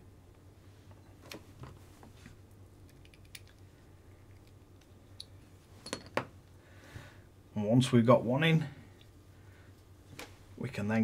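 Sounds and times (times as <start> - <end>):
small parts clicking: 2.8 - 3.6.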